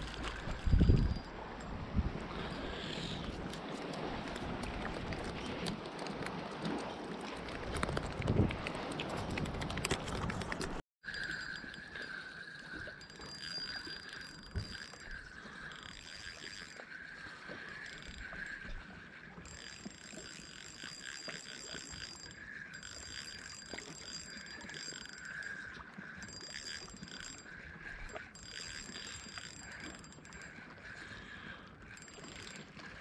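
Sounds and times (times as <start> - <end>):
spinning reel gears whirring: 0.0 - 1.3, 11.1 - 18.7, 19.4 - 31.1, 31.9 - 32.8.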